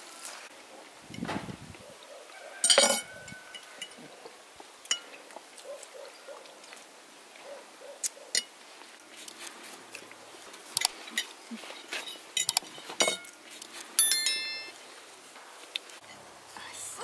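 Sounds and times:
cutlery clinking on plates: 2.6s - 4.0s, 4.9s - 5.2s, 10.8s - 13.4s.

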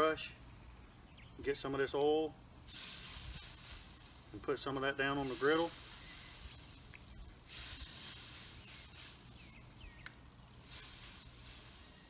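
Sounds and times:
oil sizzling on hot griddle: 2.7s - 12.0s.

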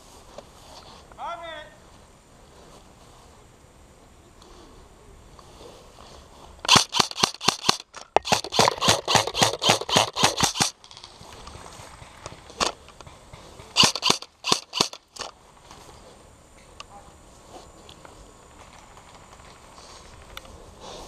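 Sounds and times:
airsoft rifle firing rapid shots: 6.7s - 10.8s, 13.7s - 15.3s.

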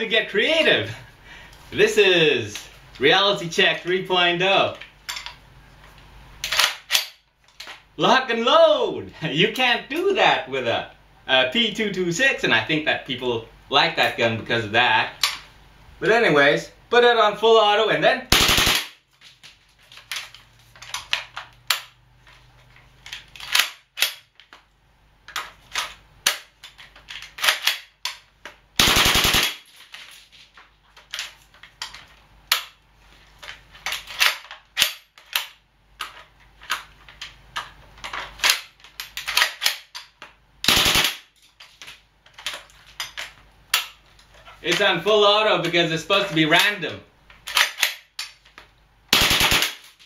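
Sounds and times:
airsoft rifle firing bursts: 18.3s - 19.0s, 28.8s - 29.7s, 40.7s - 41.3s, 49.1s - 49.9s.

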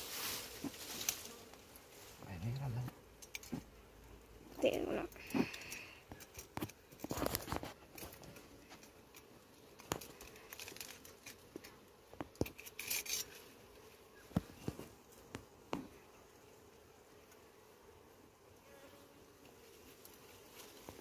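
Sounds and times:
honeycomb tearing and crackling: 5.2s - 13.4s
knife clicks and scrapes: 12.4s - 13.4s.

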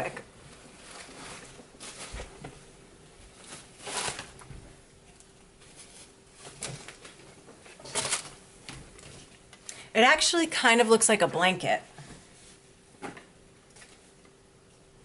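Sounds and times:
fabric rustling: 0.4s - 4.8s.

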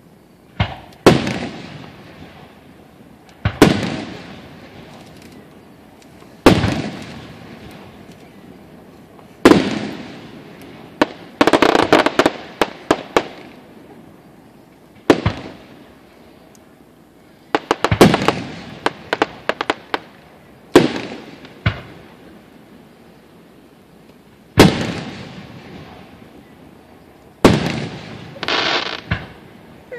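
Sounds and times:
fireworks booming: 0.0s - 14.3s, 14.9s - 16.5s, 17.5s - 23.0s, 24.0s - 29.9s
fireworks popping rapidly: 11.0s - 13.6s, 17.5s - 20.1s, 27.4s - 29.4s.

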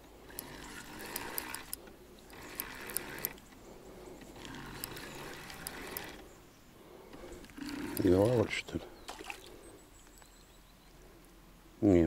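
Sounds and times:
fishing reel whirring and clicking: 0.0s - 6.3s, 7.1s - 8.4s.

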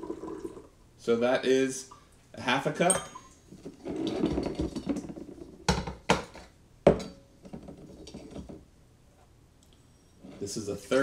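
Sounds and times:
glass bottles being handled: 2.8s - 3.4s.

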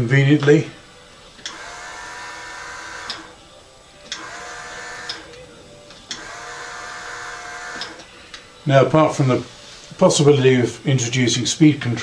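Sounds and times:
small electric motor humming: 1.4s - 3.4s, 4.1s - 5.4s, 6.1s - 8.1s.

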